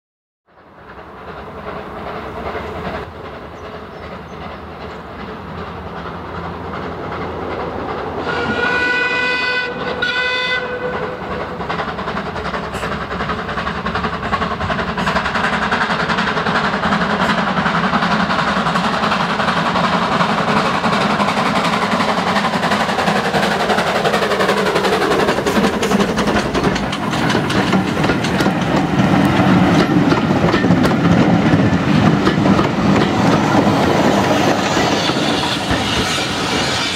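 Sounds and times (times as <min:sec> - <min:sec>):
steam locomotive working: 0:00.5 - 0:36.9
train wheels clickety-clack: 0:00.5 - 0:36.9
train whistle blasts: 0:08.2 - 0:11.2.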